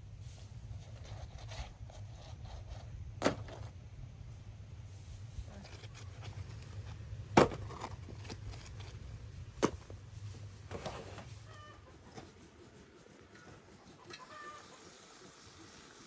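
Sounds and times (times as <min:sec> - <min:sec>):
faint low hum: 0:00.0 - 0:16.0
hen clucking: 0:11.4 - 0:12.5, 0:13.4 - 0:15.4.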